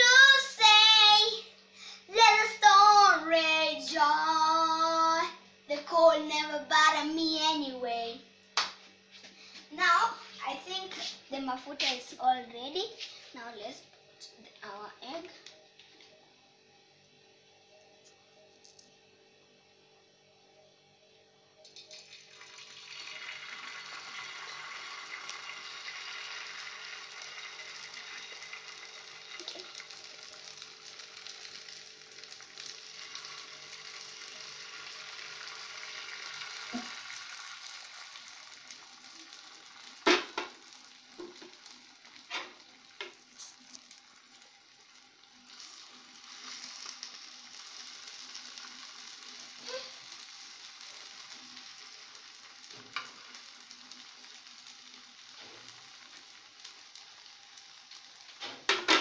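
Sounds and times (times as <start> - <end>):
egg sizzling in hot oil: 21.7 - 59.0.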